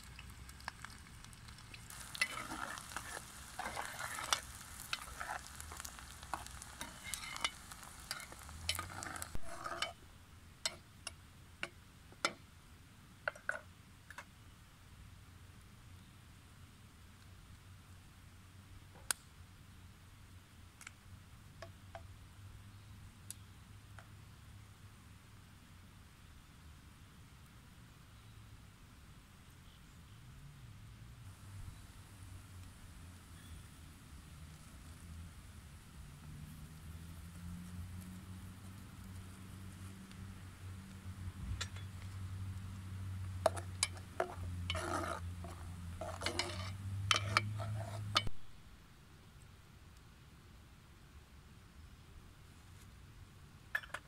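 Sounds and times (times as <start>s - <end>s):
spoon scraping metal pot: 1.9s - 10.0s, 43.4s - 48.4s.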